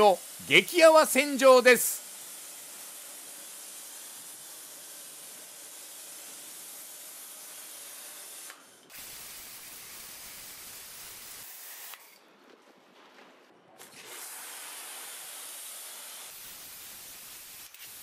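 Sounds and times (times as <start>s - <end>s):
pressure washer spraying foam: 14.0s - 18.0s.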